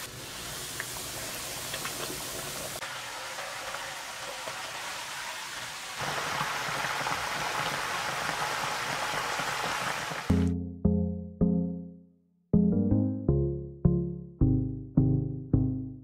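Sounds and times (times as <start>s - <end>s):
chicken sizzling in hot oil: 0.0s - 10.3s.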